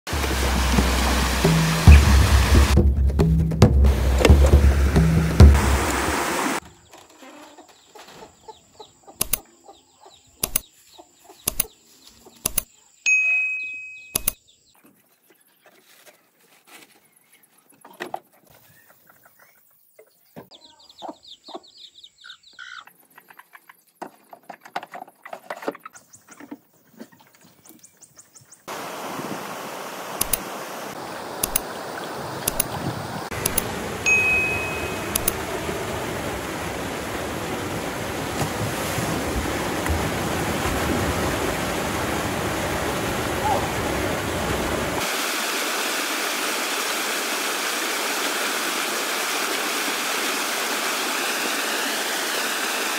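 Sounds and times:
river rushing over rocks: 0.1s - 2.8s, 28.7s - 45.4s
sharp knocks: 0.2s - 6.0s
chicken clucking: 7.1s - 10.2s, 17.7s - 23.8s.

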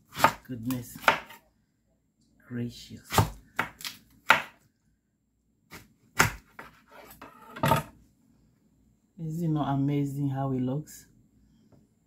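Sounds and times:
knife chopping on wooden board: 0.1s - 1.4s, 3.1s - 4.6s, 5.7s - 7.9s.

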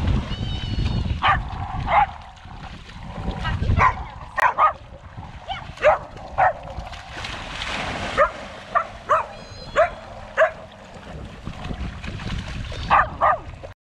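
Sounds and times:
dog yipping: 8.2s - 10.6s, 12.8s - 13.4s.

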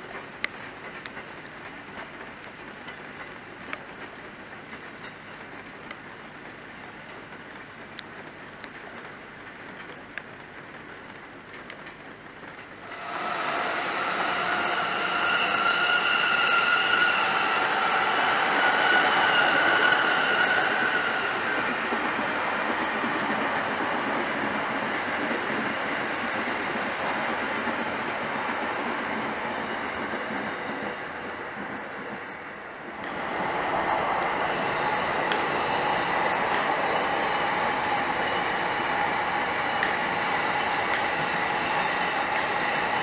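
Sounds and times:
electric train passing: 0.0s - 43.0s.

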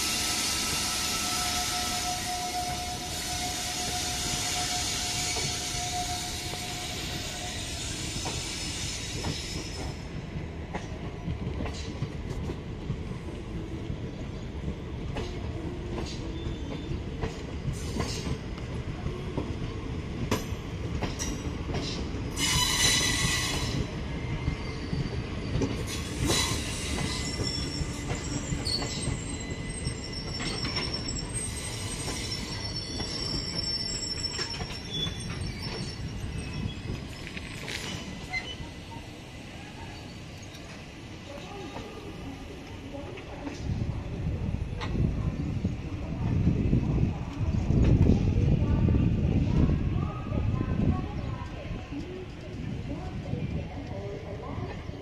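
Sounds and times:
train wheels squealing: 0.0s - 10.2s, 16.0s - 18.4s, 20.3s - 40.9s
train coaches rumbling past: 0.0s - 55.0s.

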